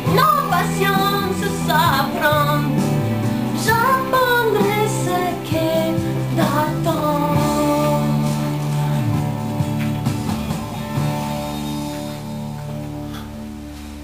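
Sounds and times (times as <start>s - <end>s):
woman singing pop song: 0.0s - 9.2s
instrumental backing: 0.0s - 14.0s.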